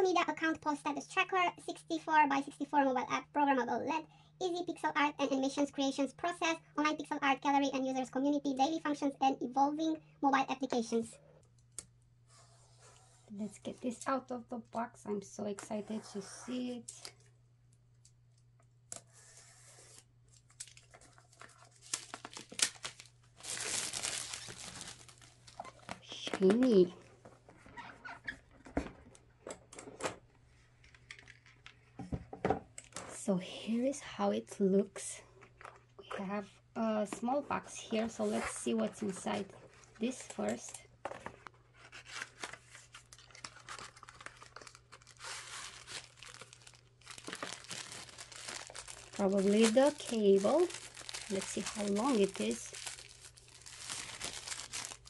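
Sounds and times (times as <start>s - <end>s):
plastic shrink-wrap crackling and tearing: 19.9s - 26.9s, 41.9s - 55.0s
cardboard box parts handled: 43.2s - 55.0s.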